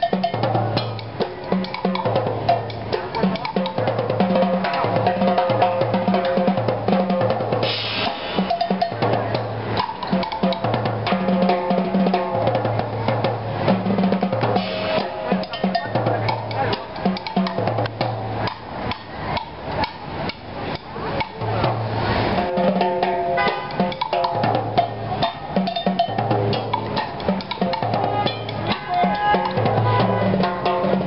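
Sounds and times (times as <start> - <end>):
drum kit beat: 0.0 - 31.0
higher melody line: 22.4 - 31.0.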